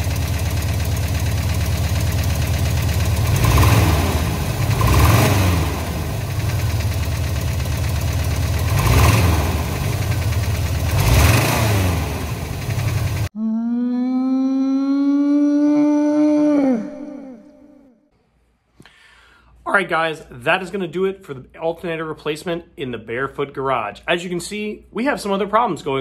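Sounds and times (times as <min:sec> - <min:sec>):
car engine idling and revving: 0:00.0 - 0:13.3.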